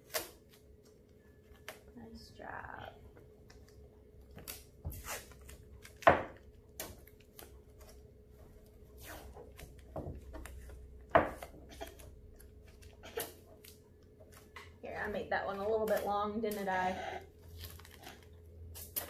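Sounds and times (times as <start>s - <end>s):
tape tearing from roll: 0.0s - 0.6s, 4.4s - 6.1s, 17.4s - 19.0s.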